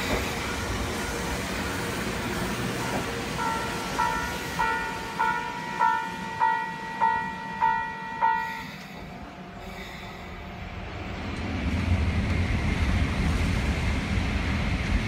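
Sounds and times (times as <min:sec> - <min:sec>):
electric train rumble: 0:00.0 - 0:15.0
level-crossing alarm ringing: 0:02.9 - 0:09.5.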